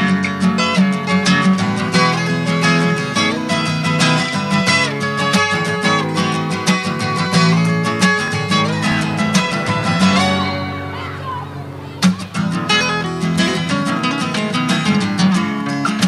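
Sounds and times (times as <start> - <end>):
rapidly strummed guitar music: 0.0 - 16.0.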